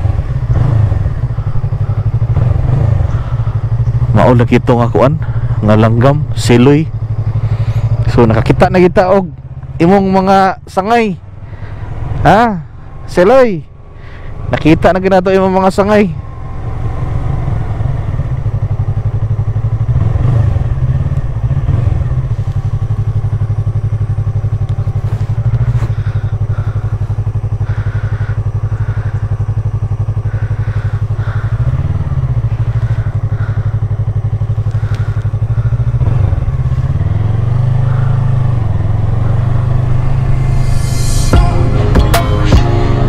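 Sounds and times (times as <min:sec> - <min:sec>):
motorcycle engine running: 0:00.0 - 0:43.0.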